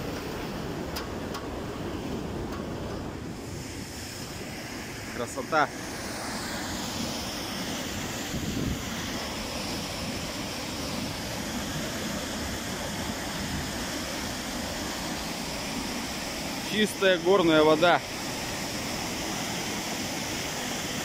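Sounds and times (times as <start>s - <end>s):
waterfall rushing over rocks: 4.4s - 21.0s.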